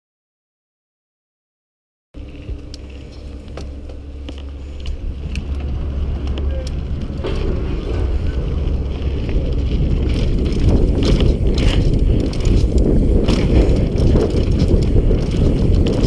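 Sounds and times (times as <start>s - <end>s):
bike clicks and rattles: 2.2s - 16.0s
bike tyres rolling on gravel: 2.2s - 16.0s
wind rumble on microphone: 2.2s - 16.0s.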